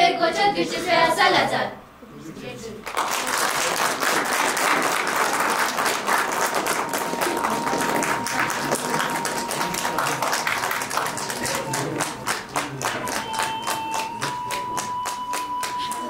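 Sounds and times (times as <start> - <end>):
audience applauding: 2.8 - 16.0
thin high tone: 6.5 - 12.3, 12.9 - 16.0.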